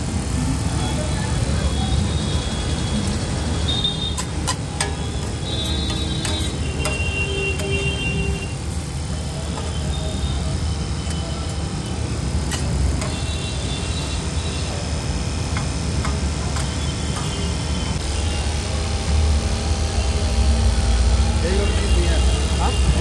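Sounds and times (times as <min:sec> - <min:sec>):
metal spatula scraping griddle: 0:04.2 - 0:08.2.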